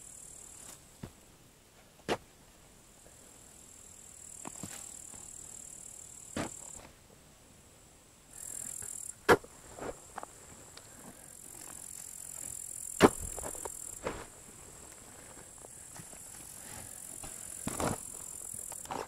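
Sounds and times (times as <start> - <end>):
insects buzzing: 3.2 - 6.9, 8.3 - 19.0
shovel cutting into soil: 13.0 - 14.3.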